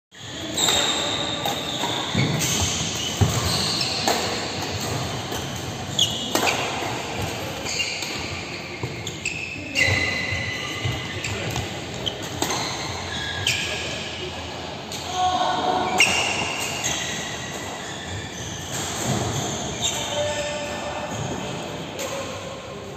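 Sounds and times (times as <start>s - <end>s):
shoe soles squeaking on floor: 0.1s - 14.1s, 15.9s - 20.7s
rackets hitting shuttlecock: 0.5s - 9.0s.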